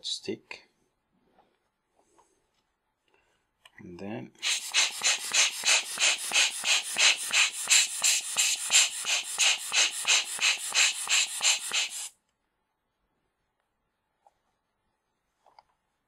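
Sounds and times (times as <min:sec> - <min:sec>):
hand air blower puffing: 0:04.4 - 0:12.1.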